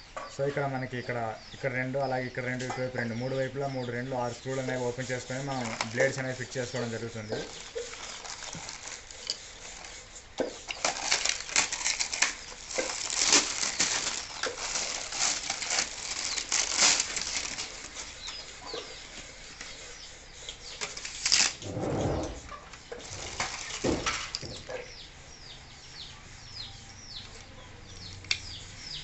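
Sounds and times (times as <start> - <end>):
plastic film crinkling: 4.4 - 18.4, 20.8 - 21.6, 23.0 - 24.5.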